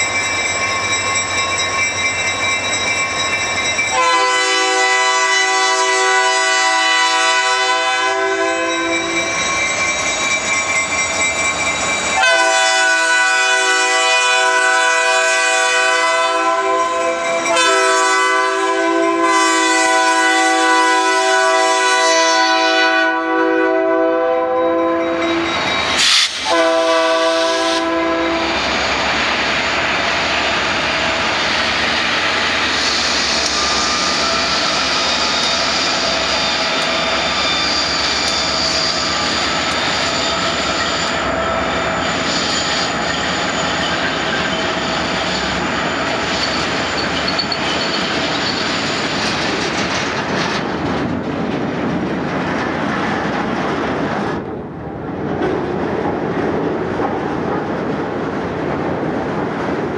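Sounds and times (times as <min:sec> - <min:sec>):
diesel locomotives rumbling: 0:00.0 - 0:59.9
locomotive air horn: 0:04.0 - 0:09.2, 0:12.2 - 0:28.7.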